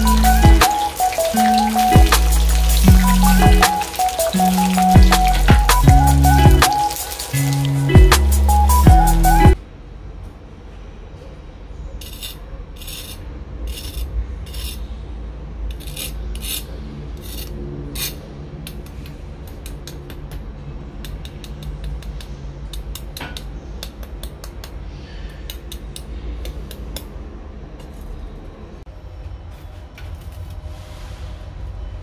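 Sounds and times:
knife scraping crispy pork skin: 0:12.0 - 0:14.8, 0:15.8 - 0:18.2.

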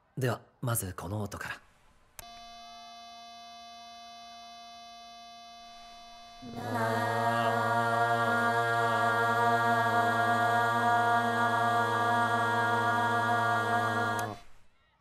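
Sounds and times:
electronic tuning tone: 0:02.2 - 0:08.0
group singing unison note: 0:06.4 - 0:14.6.

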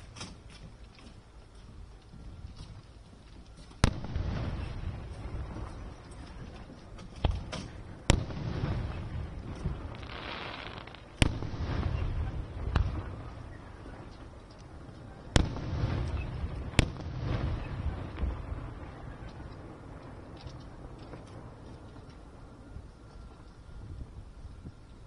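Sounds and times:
fireworks crackle: 0:00.0 - 0:25.0
fireworks bangs: 0:03.8 - 0:22.1.

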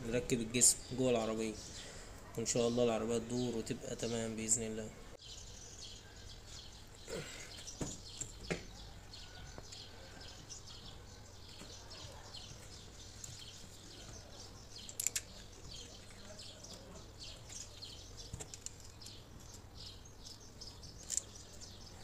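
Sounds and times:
faint bird chirps: 0:05.1 - 0:22.0.

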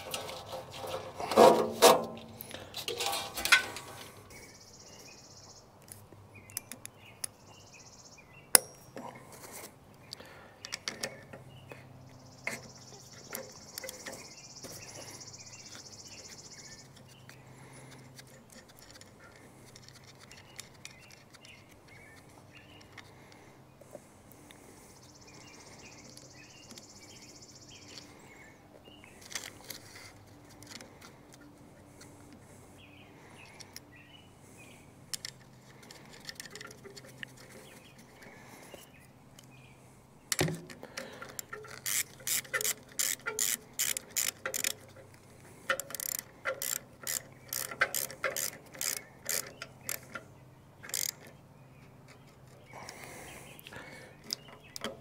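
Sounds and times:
ratchet wrench clicking: 0:41.2 - 0:45.0, 0:45.7 - 0:50.2, 0:50.8 - 0:51.3.

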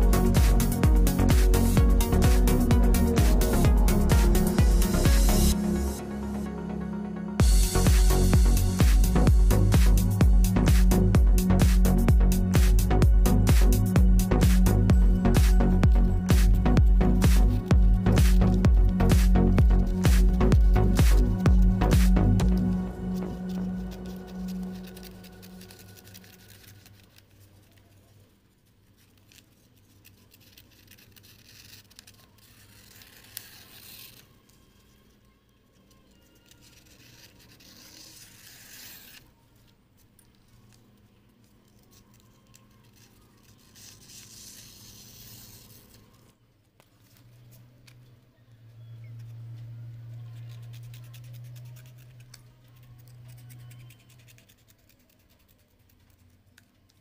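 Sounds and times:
steady low hum: 0:00.0 - 0:27.7
razor blade slicing paper: 0:21.9 - 0:28.0, 0:28.8 - 0:34.5, 0:36.3 - 0:39.4, 0:41.6 - 0:46.2, 0:49.1 - 0:56.2.

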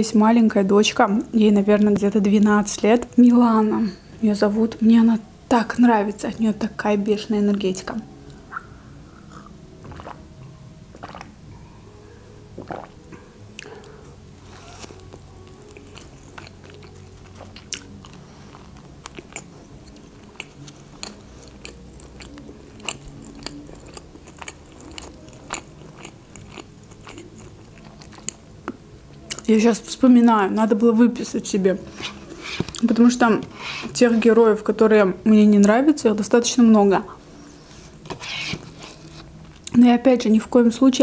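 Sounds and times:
sip from a glass: 0:11.0 - 0:11.4, 0:12.6 - 0:13.0
chewing and crunching: 0:14.5 - 0:29.5.

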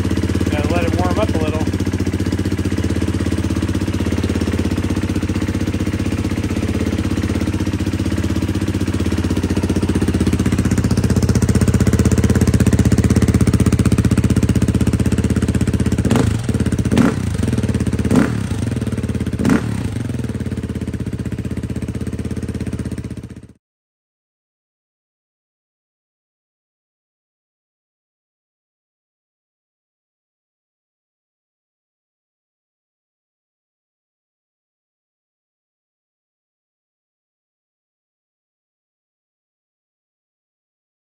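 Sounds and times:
dirt bike engine idling: 0:00.0 - 0:23.6.

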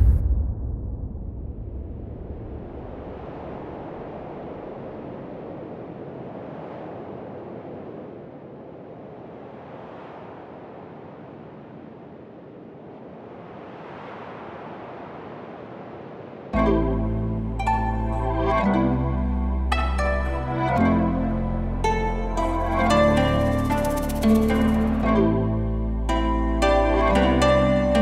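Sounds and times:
steady rushing noise: 0:00.0 - 0:16.6, 0:22.4 - 0:25.0.

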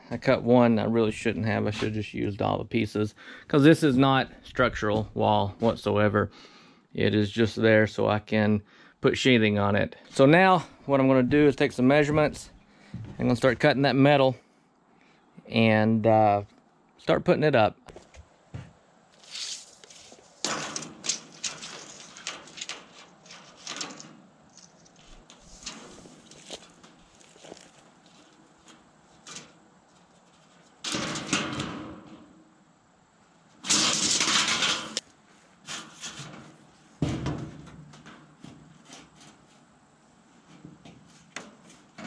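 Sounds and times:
scraping on metal panel: 0:19.2 - 0:27.1, 0:33.6 - 0:35.0, 0:35.6 - 0:39.6.

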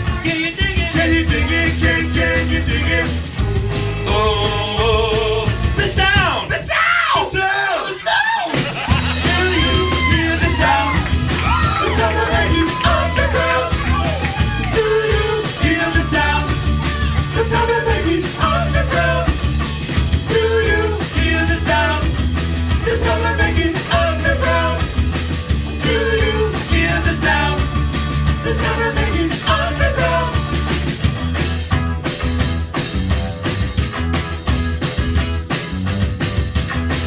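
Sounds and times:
electric guitar: 0:00.0 - 0:05.8, 0:08.5 - 0:37.0
electric bass: 0:00.0 - 0:06.4, 0:08.9 - 0:37.0
man singing: 0:00.0 - 0:19.4, 0:20.2 - 0:24.9, 0:25.8 - 0:30.4
drums: 0:00.0 - 0:37.0.

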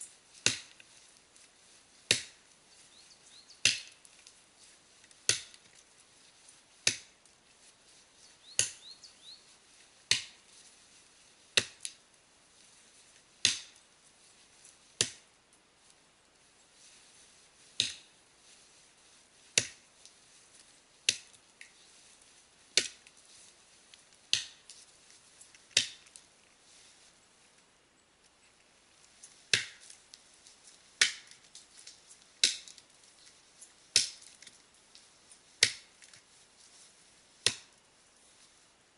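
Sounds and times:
axe chopping into tree trunk: 0:00.4 - 0:00.8, 0:02.1 - 0:02.4, 0:03.6 - 0:04.0, 0:05.2 - 0:05.6, 0:06.8 - 0:07.1, 0:11.6 - 0:11.9, 0:13.4 - 0:13.7, 0:17.8 - 0:18.1, 0:29.5 - 0:29.8, 0:31.0 - 0:31.4, 0:32.4 - 0:32.7, 0:35.6 - 0:35.9, 0:37.4 - 0:37.7.

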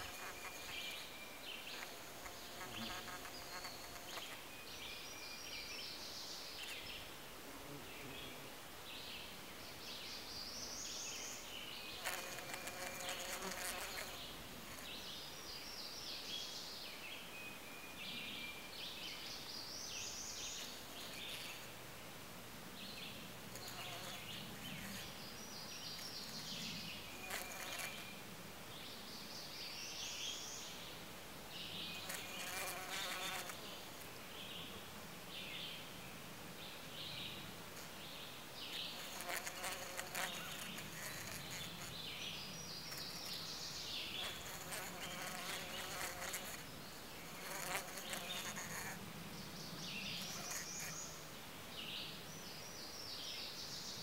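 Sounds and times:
bee buzzing: 0:00.0 - 0:04.4, 0:11.9 - 0:14.8, 0:23.4 - 0:25.2, 0:27.0 - 0:28.2, 0:32.0 - 0:33.6, 0:38.7 - 0:42.1, 0:44.1 - 0:49.0, 0:50.2 - 0:51.0.

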